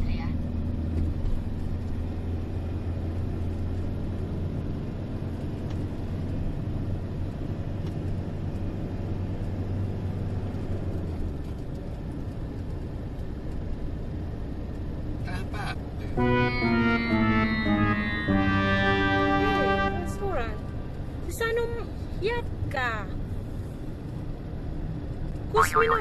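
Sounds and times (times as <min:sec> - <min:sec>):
car engine and road noise: 0:00.0 - 0:26.0
deep hum: 0:16.0 - 0:21.3.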